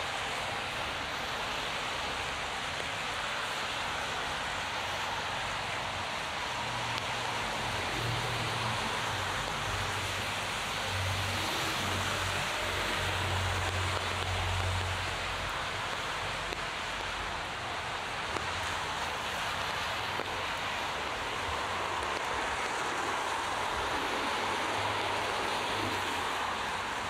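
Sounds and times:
heavy rain hissing: 0.0s - 27.0s.

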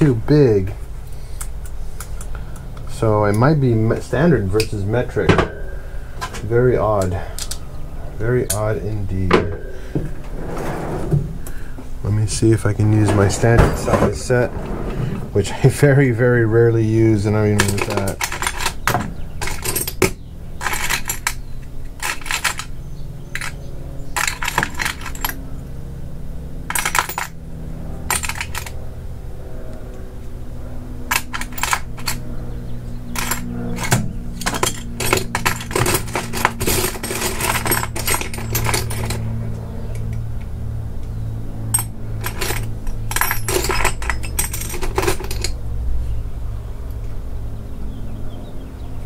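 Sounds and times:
steady low hum: 0.0s - 49.0s
metal allen keys clinking: 17.5s - 25.5s, 26.6s - 27.4s, 28.1s - 28.8s, 31.1s - 32.4s, 33.0s - 40.2s, 41.7s - 45.6s.

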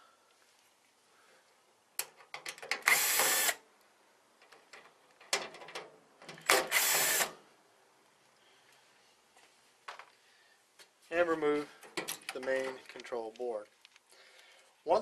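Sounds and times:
power screwdriver motor running: 2.9s - 3.6s, 6.6s - 7.3s.

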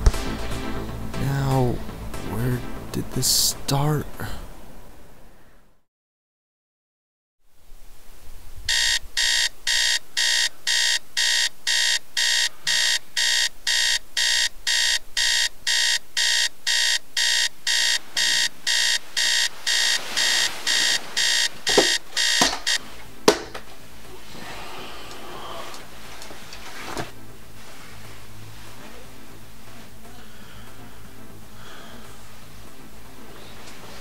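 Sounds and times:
alarm clock beeping: 8.7s - 22.9s
sharp knocks: 21.7s - 23.6s.

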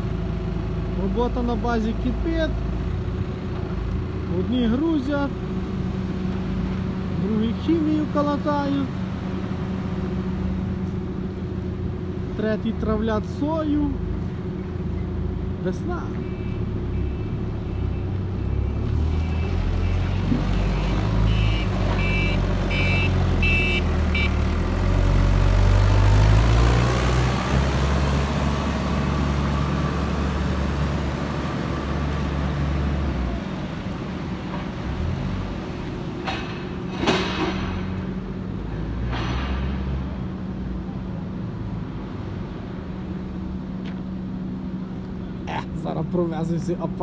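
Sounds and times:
diesel engine running: 0.0s - 47.0s
reversing alarm beeping: 20.6s - 24.4s.

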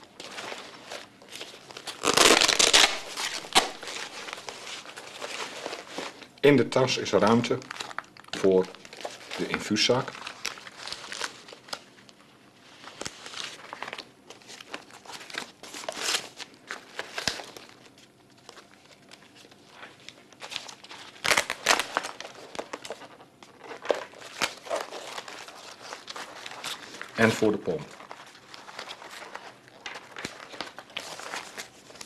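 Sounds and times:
plastic and nylon bags rustling: 0.0s - 32.0s.

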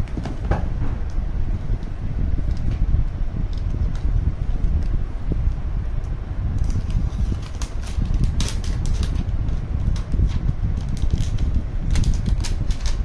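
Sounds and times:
steady low rumble: 0.0s - 13.0s
plastic film crinkling: 6.6s - 13.0s.

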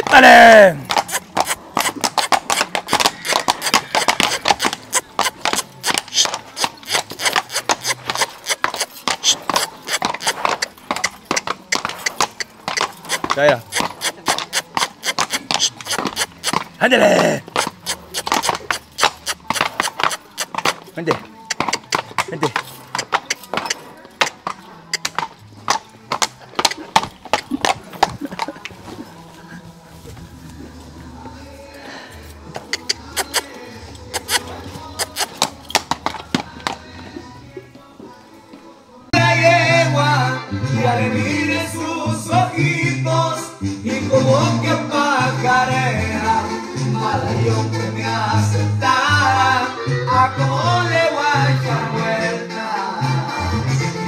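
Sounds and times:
horse hooves tapping ground: 0.0s - 39.2s.

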